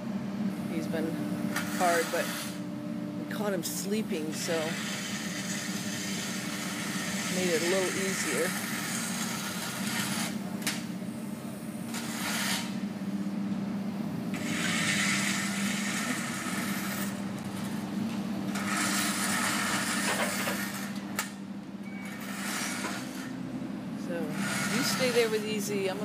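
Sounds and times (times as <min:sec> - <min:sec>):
construction machinery hum: 0:00.0 - 0:26.0
harsh rasping noise: 0:14.4 - 0:17.8, 0:24.3 - 0:25.5.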